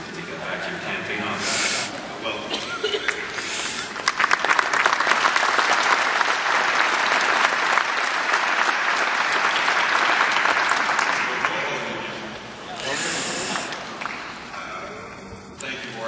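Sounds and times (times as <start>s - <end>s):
audience applauding: 3.0s - 14.6s.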